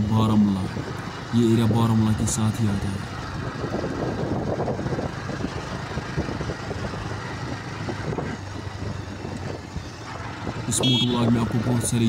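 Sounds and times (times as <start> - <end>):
motorcycle engine running: 0.0 - 12.0
wind rushing over microphone: 3.4 - 11.6.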